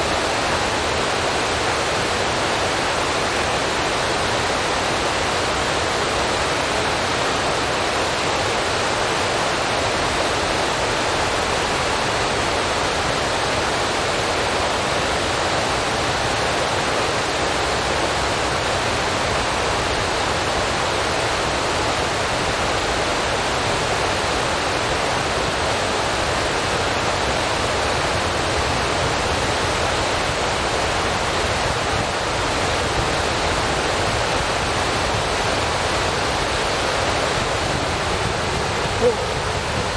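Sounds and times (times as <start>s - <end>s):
steady rushing hiss: 19.6s - 39.9s.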